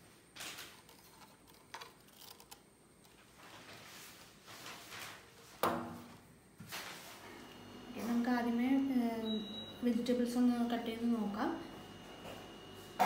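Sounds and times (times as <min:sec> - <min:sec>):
plastic handling rustles and clicks: 0:00.4 - 0:05.3.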